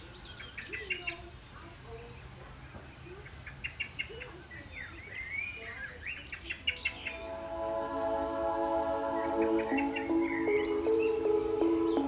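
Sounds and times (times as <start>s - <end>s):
small birds chirping: 0.0s - 7.6s, 8.9s - 12.0s
soft music with held notes: 7.1s - 12.0s.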